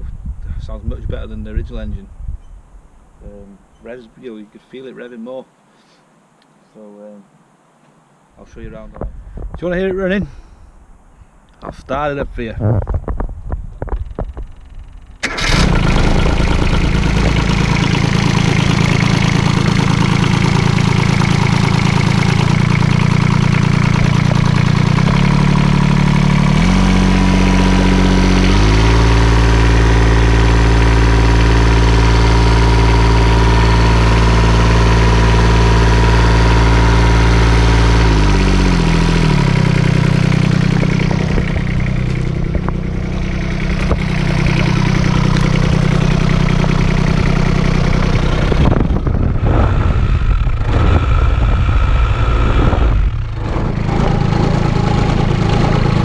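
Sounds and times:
diesel engine idling and revving: 14.4 - 56.0.

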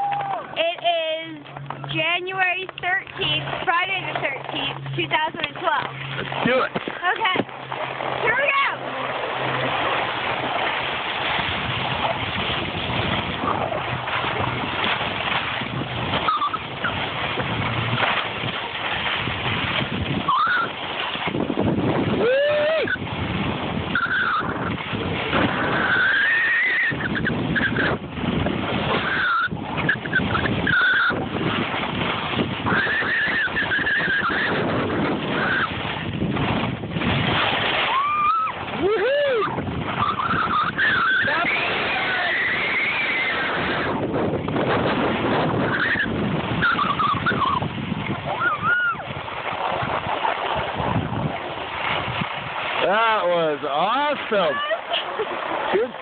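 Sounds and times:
wind on microphone: 0.0 - 53.4
skis sliding over snow: 0.1 - 22.9, 24.0 - 44.0
child screaming: 37.9 - 39.6, 48.4 - 49.0.

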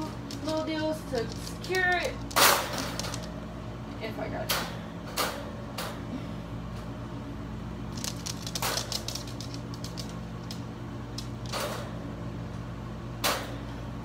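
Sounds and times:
wire crate rattling: 0.0 - 3.4, 7.9 - 12.0.

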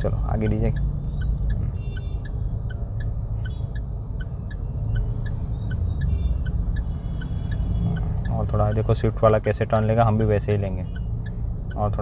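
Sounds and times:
turn signal clicking: 0.0 - 9.6
low engine and road rumble: 0.0 - 12.0.

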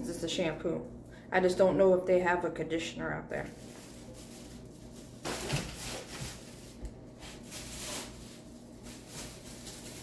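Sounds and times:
plastic bag rustling: 3.3 - 10.0.

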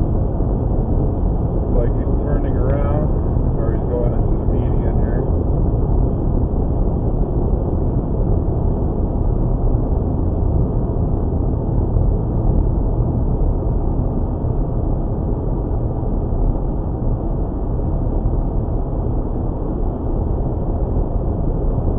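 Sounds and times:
car road and engine noise: 0.0 - 21.9.

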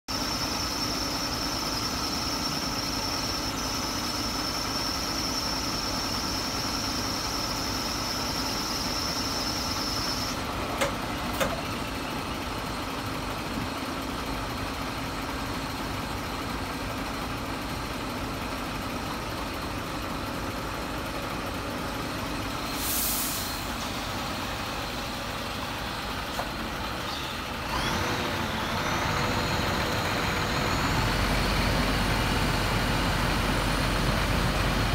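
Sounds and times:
diesel engine running: 0.1 - 34.9
air hiss: 22.6 - 23.9.

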